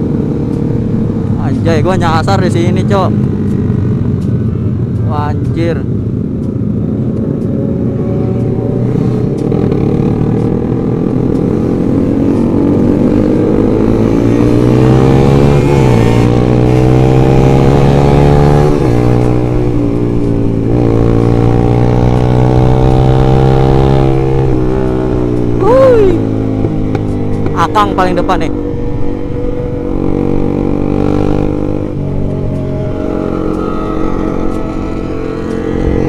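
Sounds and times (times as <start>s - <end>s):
wind rushing past: 32.0s - 36.0s.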